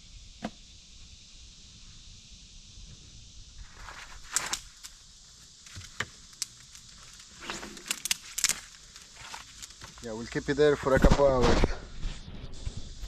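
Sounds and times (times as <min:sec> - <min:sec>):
faint hiss: 0:00.0 - 0:13.0.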